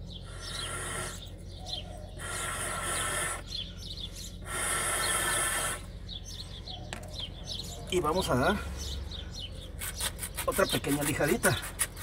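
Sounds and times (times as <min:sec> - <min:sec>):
small birds chirping: 0:00.0 - 0:12.0
air and water hissing through hose: 0:00.3 - 0:01.2, 0:02.2 - 0:03.5, 0:04.4 - 0:05.9.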